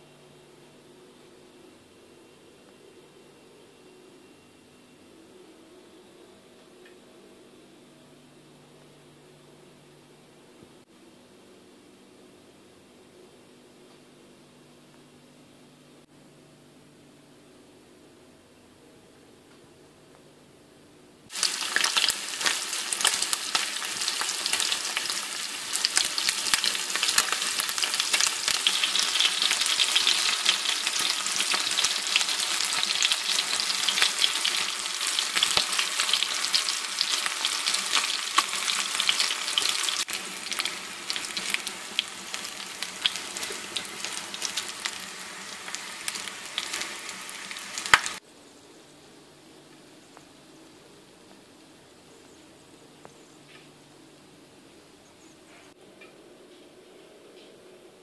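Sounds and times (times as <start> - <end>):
chicken wings sizzling in oil: 21.3 - 48.2.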